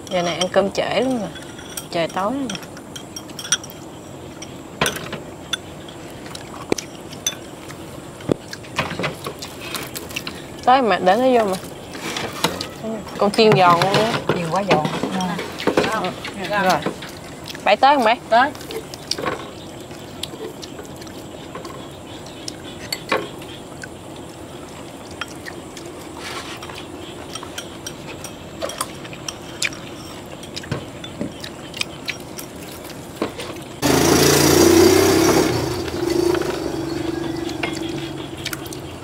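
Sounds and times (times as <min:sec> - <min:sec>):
chopsticks clinking on bowls: 0:00.0 - 0:07.6, 0:26.6 - 0:32.9
loud rough noise: 0:33.8 - 0:38.6.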